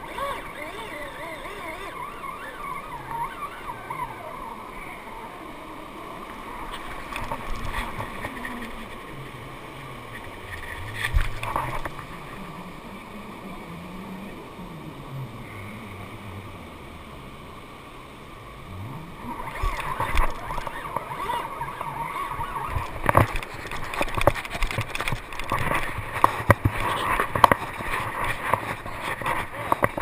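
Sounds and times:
fishing reel drag buzzing: 0.0 - 5.6, 19.2 - 30.0
surf washing: 0.0 - 30.0.

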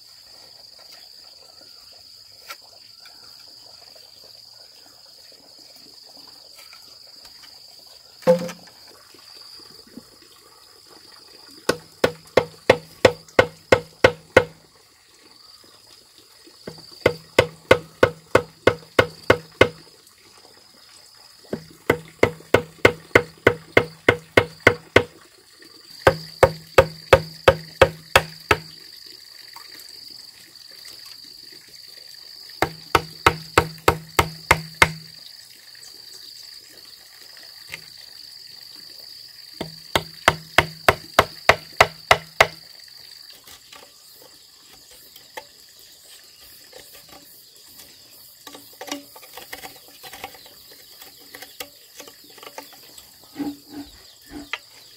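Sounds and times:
insects buzzing: 5.0 - 10.6, 11.5 - 14.7, 15.3 - 19.9, 20.6 - 54.9
tool strikes on bamboo: 8.2 - 8.7, 11.7 - 14.6, 16.7 - 19.8, 21.5 - 25.1, 26.0 - 28.7, 32.6 - 35.1, 39.6 - 42.6.

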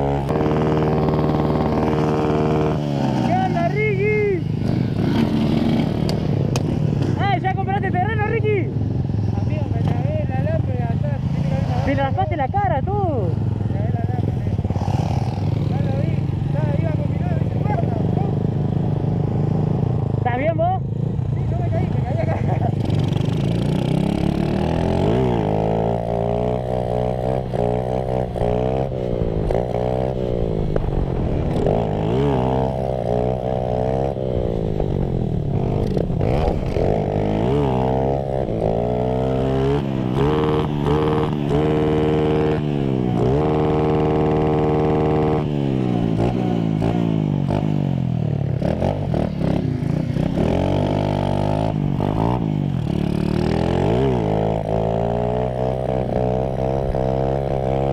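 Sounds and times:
small motorcycle engine revving: 0.0 - 7.2, 13.1 - 20.2, 21.8 - 57.9.

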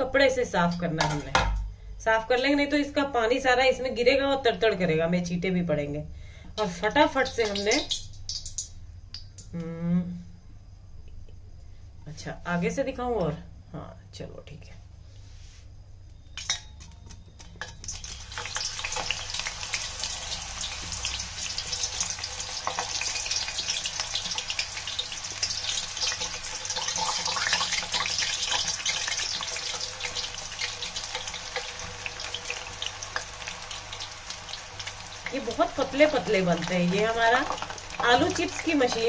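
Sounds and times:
banana slices sizzling in oil: 6.7 - 8.8, 17.6 - 39.0.

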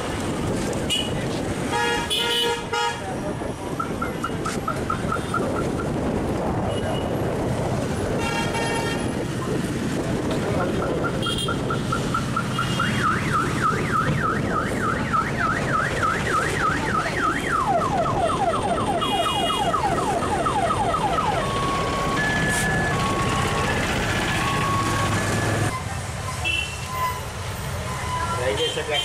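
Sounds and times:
low street traffic rumble: 0.0 - 29.0
car alarm siren: 11.9 - 23.8.

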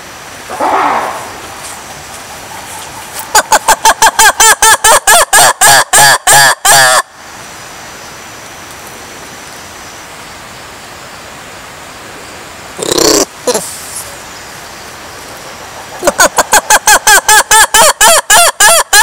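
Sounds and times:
steady hiss: 0.0 - 4.6, 7.0 - 16.8
lemur calling: 0.5 - 7.0, 12.8 - 13.8.

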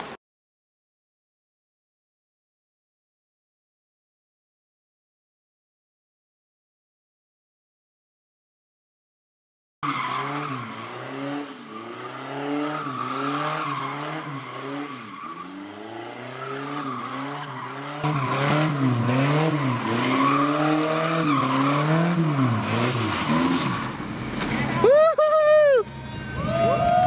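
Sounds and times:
car engine revving: 9.8 - 24.8
tyres squealing and skidding: 9.8 - 26.8.

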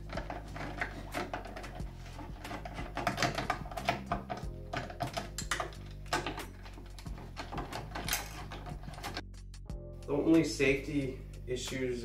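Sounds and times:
screwdriver clicking and scraping: 0.0 - 9.3
upbeat instrumental music: 0.0 - 12.0.

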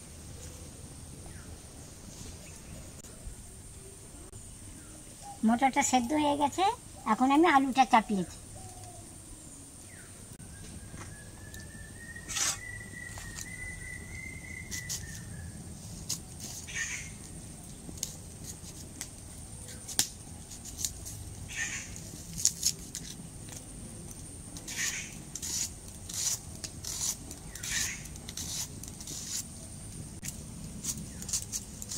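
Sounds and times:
thin whistling tone: 10.4 - 15.6
curved blade scraping vegetable: 12.3 - 13.6, 24.7 - 29.7, 30.8 - 31.9.

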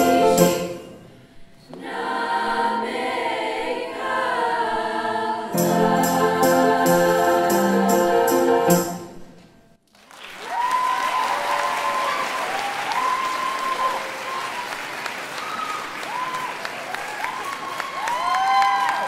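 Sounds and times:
girls' choir with piano: 0.0 - 9.2
audience applause: 9.9 - 19.0
high whooping cheers: 10.4 - 19.0.

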